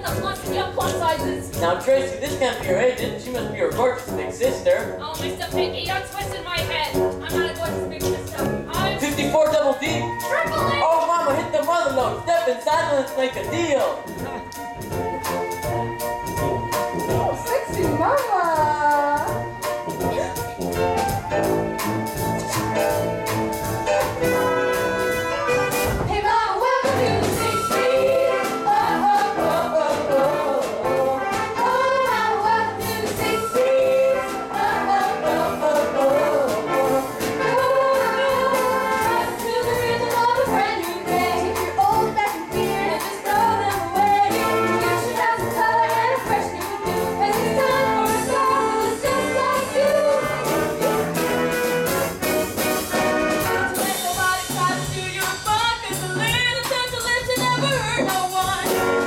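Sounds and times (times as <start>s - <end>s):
pit band with brass playing: 0.0s - 59.0s
cast singing: 25.3s - 51.7s.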